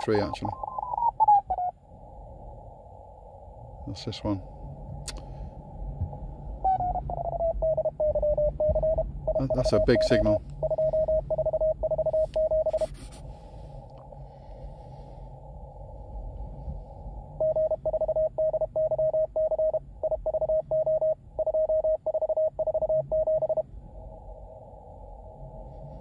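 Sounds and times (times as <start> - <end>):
faint weak radio signals: 0.0 - 1.8, 6.6 - 13.7
morse code tone: 6.6 - 13.1, 17.4 - 23.7
radio band hiss: 9.4 - 11.3, 12.0 - 13.8.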